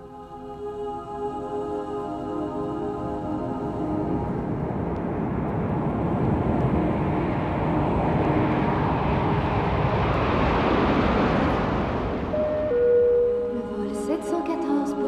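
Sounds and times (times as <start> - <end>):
jet engines rushing: 3.1 - 14.4.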